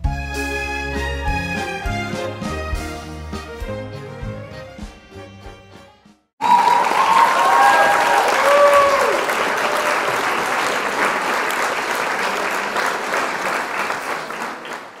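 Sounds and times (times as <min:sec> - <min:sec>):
crowd applauding: 0:06.4 - 0:15.0.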